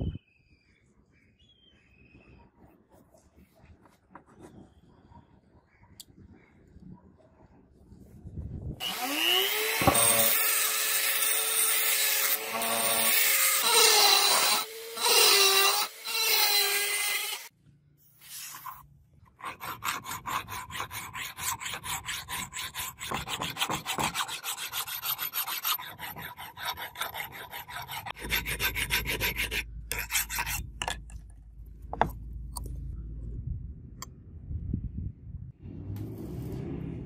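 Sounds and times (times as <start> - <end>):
file scraping steel blade: 18.3 - 31.2
low rumble: 31.4 - 37.0.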